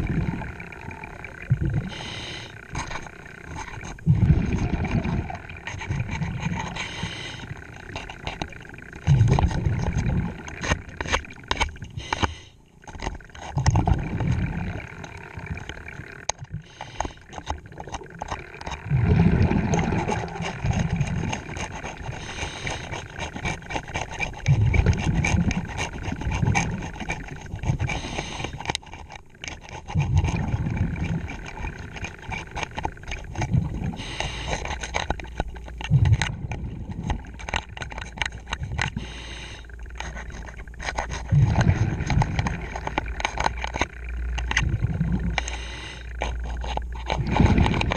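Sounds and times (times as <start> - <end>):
diver breathing underwater: 0.0 - 2.8, 3.6 - 8.2, 11.9 - 12.6, 16.6 - 17.6, 18.9 - 23.7, 25.9 - 28.7, 33.6 - 35.1, 38.8 - 43.5, 44.7 - 47.9
bubbling of exhaled air: 0.0 - 28.8, 29.4 - 47.9.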